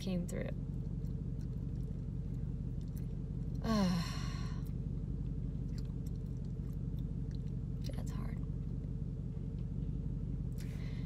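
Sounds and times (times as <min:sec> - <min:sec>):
car interior hum: 0:00.0 - 0:11.0
woman sighing: 0:03.6 - 0:04.6.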